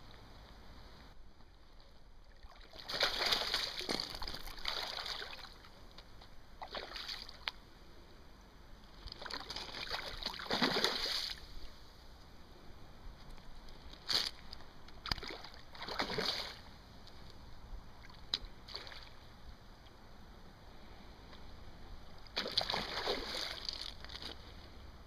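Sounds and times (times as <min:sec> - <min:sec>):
fish splashing and thrashing: 0:02.3 - 0:05.7, 0:08.9 - 0:11.5, 0:13.7 - 0:16.7, 0:22.2 - 0:24.5.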